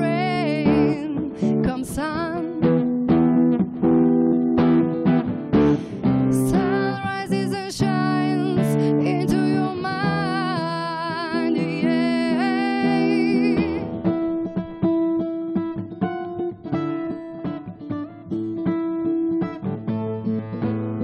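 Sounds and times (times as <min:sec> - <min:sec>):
woman singing with vibrato: 0:00.0 - 0:03.0, 0:06.2 - 0:14.0
acoustic guitar strumming: 0:00.0 - 0:21.0.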